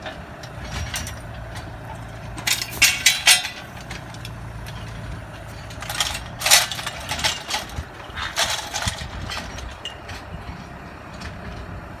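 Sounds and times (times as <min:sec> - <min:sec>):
tractor engine running: 0:00.0 - 0:12.0.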